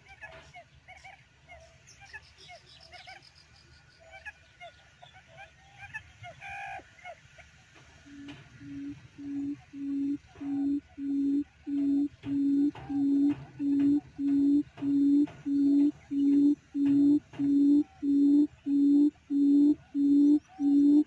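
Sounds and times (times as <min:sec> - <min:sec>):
quail lure call low hooting: 0:08.1 - 0:21.0.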